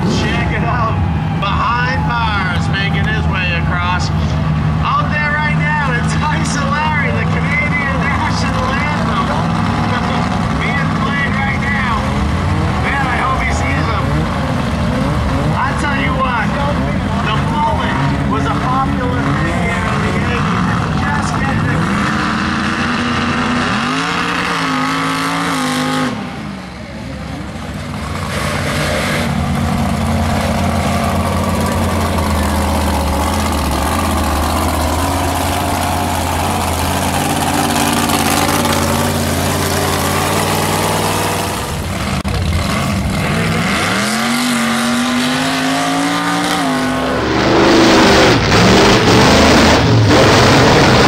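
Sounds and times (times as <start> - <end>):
truck engine revving: 0.0 - 51.0.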